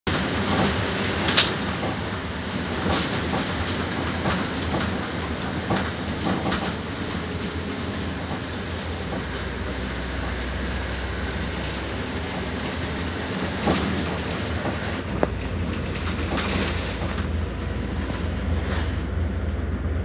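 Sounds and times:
bus engine and road rumble: 0.0 - 20.0
rattling knocks in bus cabin: 0.1 - 10.4, 12.3 - 17.3.

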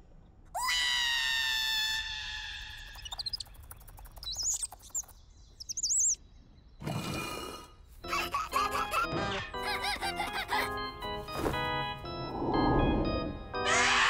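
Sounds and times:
high squeaky chirps: 2.6 - 6.2
cartoon hyena yelling: 13.6 - 14.0.

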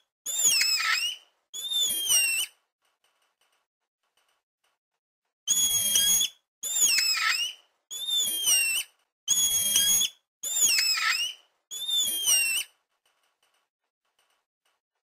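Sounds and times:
monkey whinny calls: 5.5 - 12.6.

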